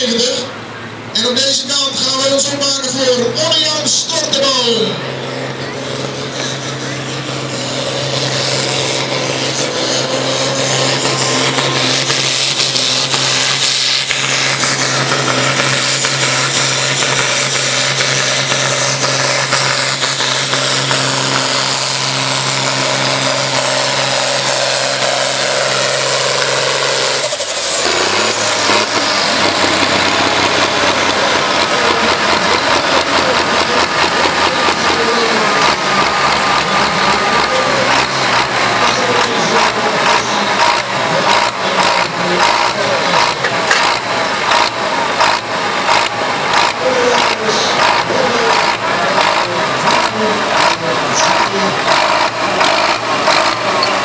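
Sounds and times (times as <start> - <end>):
diesel tractor engine under load: 0.0 - 54.0.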